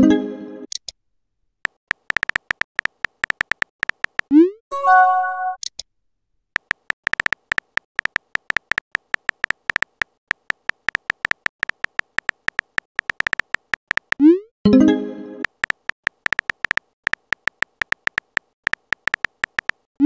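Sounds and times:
keyboard tap clicks: 0:01.7 - 0:04.3, 0:06.6 - 0:14.2, 0:15.4 - 0:19.8.

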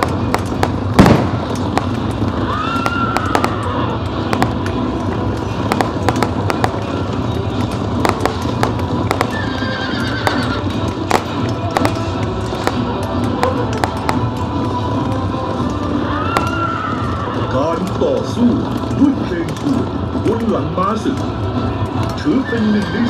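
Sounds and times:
horse whinnying: 0:09.2 - 0:10.7.

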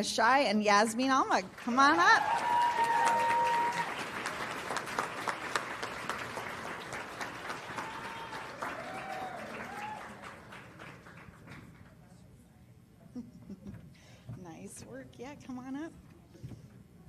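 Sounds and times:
audience applauding: 0:01.6 - 0:11.9.

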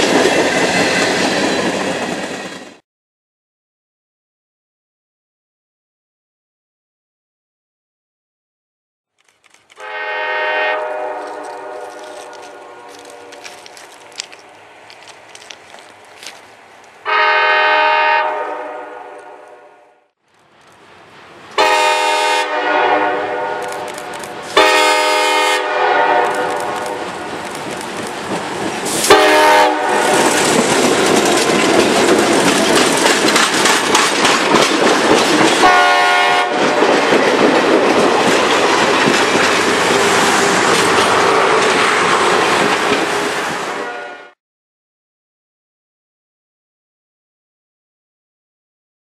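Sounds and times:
train wheels on rails: 0:00.0 - 0:02.8, 0:09.2 - 0:17.6, 0:22.7 - 0:44.1
locomotive air horn blasts: 0:09.8 - 0:13.5, 0:17.0 - 0:20.0, 0:21.6 - 0:23.9, 0:24.5 - 0:27.0, 0:29.0 - 0:30.2, 0:35.6 - 0:36.8, 0:43.8 - 0:44.4.

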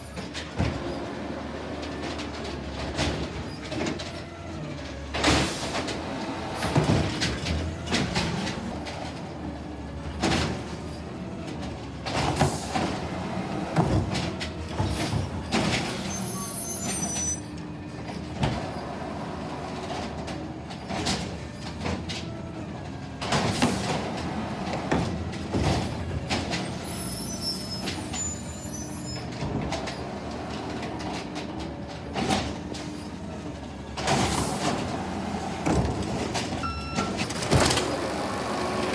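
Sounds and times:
garbage truck running: 0:00.0 - 0:38.9
high squeals: 0:15.9 - 0:17.5.

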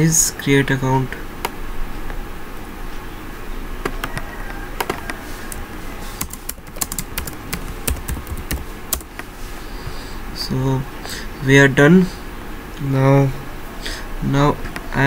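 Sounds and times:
computer keyboard typing: 0:04.8 - 0:09.2.

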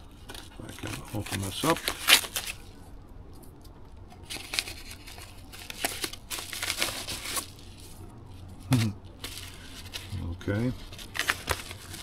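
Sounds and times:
cardboard and paper rustling: 0:00.1 - 0:02.8, 0:04.2 - 0:12.0
cardboard envelope tearing: 0:00.3 - 0:02.7, 0:04.3 - 0:07.7, 0:08.7 - 0:12.0.

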